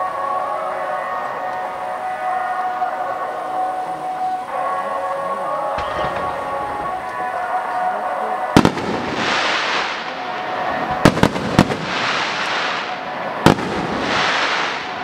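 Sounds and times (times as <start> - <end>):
fireworks crackling: 0.0 - 15.0
fireworks bangs: 5.6 - 15.0.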